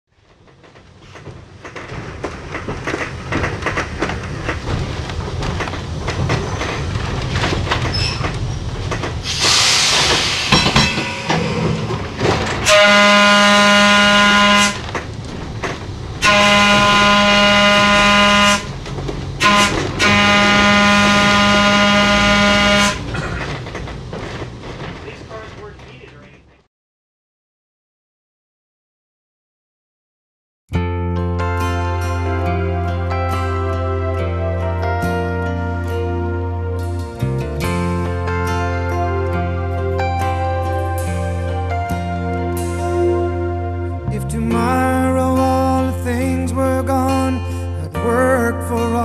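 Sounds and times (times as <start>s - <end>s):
electric railcar running on track: 0.2s - 26.6s
train horn: 12.6s - 14.9s, 16.2s - 18.8s, 19.4s - 23.2s.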